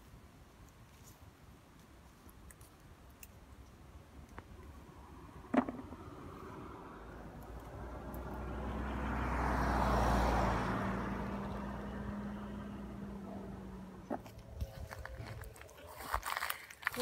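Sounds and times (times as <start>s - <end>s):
car passing by: 4.8s - 14.6s.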